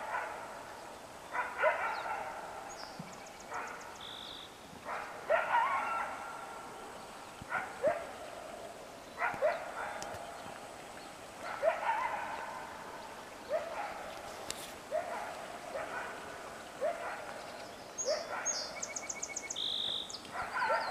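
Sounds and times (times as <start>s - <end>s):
bird chirping: 1.8s - 4.5s, 17.4s - 20.9s.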